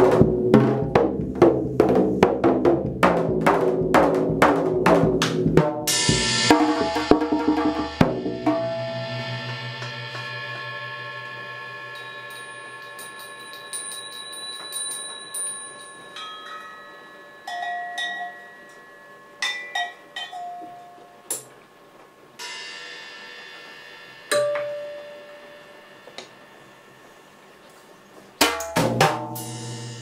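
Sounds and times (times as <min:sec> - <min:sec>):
metal percussion strikes ringing: 0:04.9 - 0:21.4, 0:22.4 - 0:27.4.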